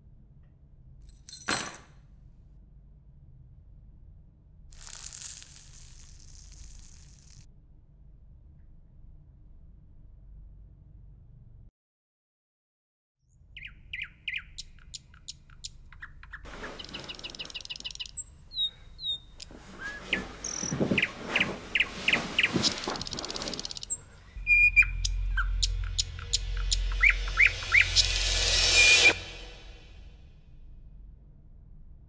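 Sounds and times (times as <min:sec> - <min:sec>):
songbird chirping and trilling: 0:13.6 - 0:29.2
low rumble: 0:24.1 - 0:32.0.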